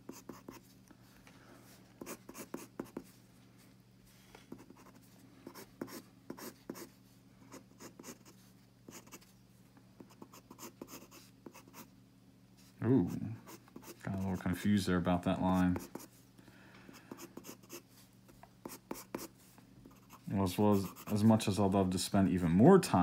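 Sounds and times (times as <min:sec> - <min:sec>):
steady low hum: 0:00.0 - 0:23.0
pencil scratching on paper: 0:00.1 - 0:00.6, 0:02.0 - 0:03.1, 0:04.5 - 0:09.3, 0:10.0 - 0:11.9, 0:13.0 - 0:14.6, 0:15.5 - 0:16.2, 0:17.0 - 0:17.8, 0:18.6 - 0:21.3.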